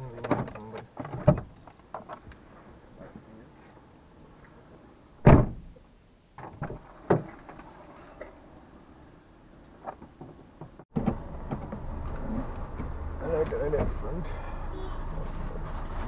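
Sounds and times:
vehicle and road rumble: 0.0s - 16.0s
loud thump: 5.2s - 5.8s.

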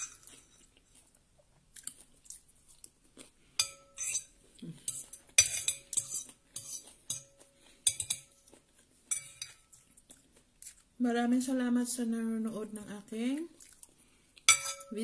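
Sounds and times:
cutlery scraping and clinking plate: 0.0s - 0.7s, 3.6s - 8.5s, 9.1s - 9.9s, 14.5s - 15.0s.

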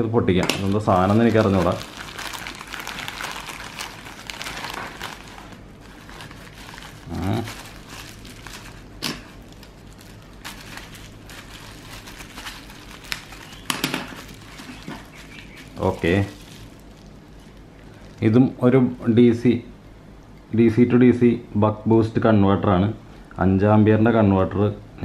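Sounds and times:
plastic mailer crinkling: 0.6s - 18.6s
bubble wrap rustling: 0.6s - 18.9s.

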